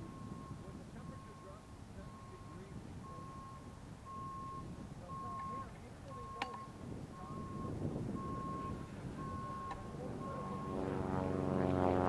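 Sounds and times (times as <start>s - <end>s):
reversing alarm beeping: 0.0s - 10.9s
outdoor background noise: 0.0s - 12.0s
loud steady drone: 8.3s - 12.0s.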